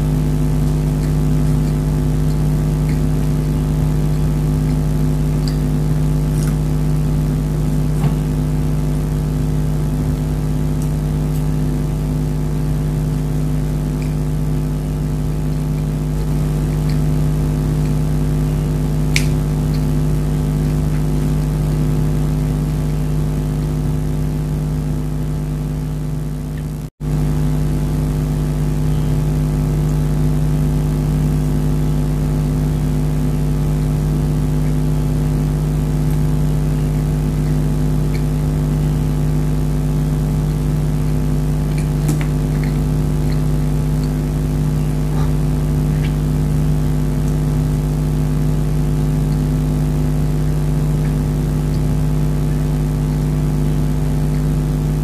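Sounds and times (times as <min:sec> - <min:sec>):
machine hum with low drone: 0:00.0 - 0:55.0
faint clicks: 0:05.4 - 0:05.7.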